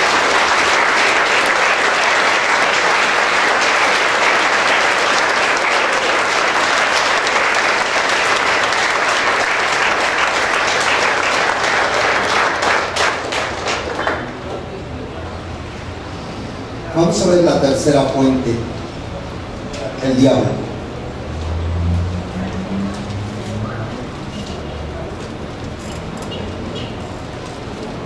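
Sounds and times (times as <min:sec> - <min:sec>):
congregation clapping: 0:00.0 - 0:14.7.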